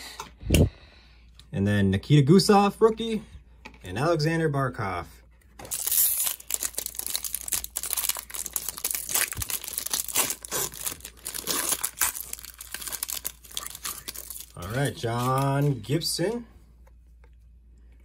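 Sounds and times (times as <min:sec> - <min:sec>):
foil wrapper crinkling: 0:05.7 - 0:15.8.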